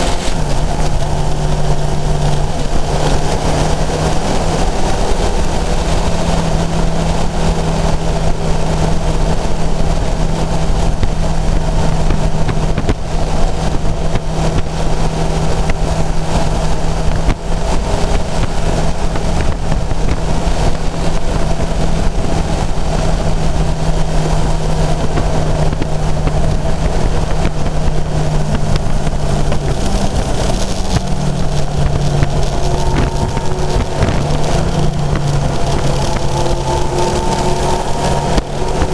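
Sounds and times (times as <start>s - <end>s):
heavy wind rush: 0.0s - 38.9s
motorcycle engine running: 0.0s - 38.9s.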